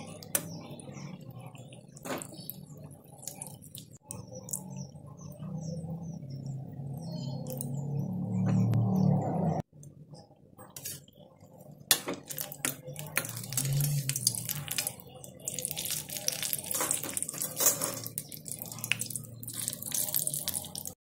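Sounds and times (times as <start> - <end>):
batter balls deep-frying in oil: 0.0 - 21.0
metal skimmer turning food: 10.7 - 21.0.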